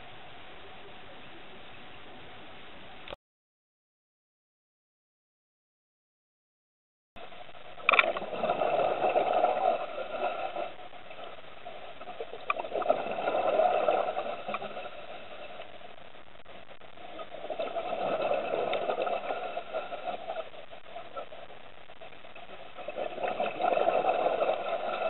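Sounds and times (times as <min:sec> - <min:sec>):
steady underwater hum: 0:00.0 - 0:03.2, 0:07.2 - 0:25.0
diver exhaling bubbles: 0:08.0 - 0:10.8, 0:12.3 - 0:15.3, 0:17.2 - 0:20.5, 0:22.9 - 0:25.0.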